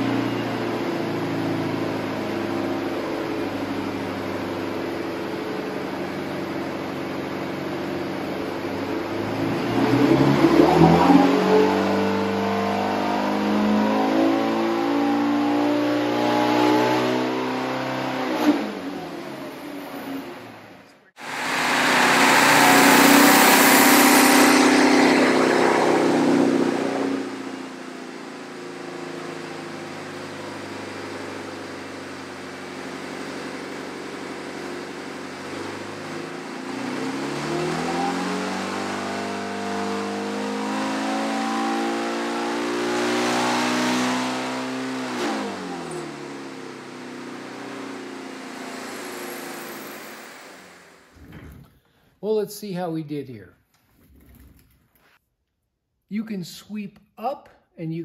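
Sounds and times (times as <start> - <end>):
engine revving on dynamometer: 8.6 - 19.8, 21.2 - 51.3.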